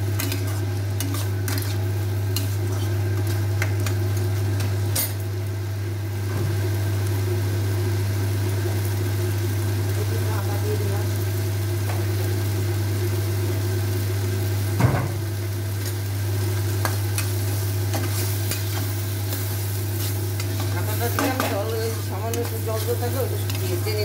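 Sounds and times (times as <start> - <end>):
light sizzle: 0.0 - 24.0
metal spatula scraping wok: 0.2 - 2.9.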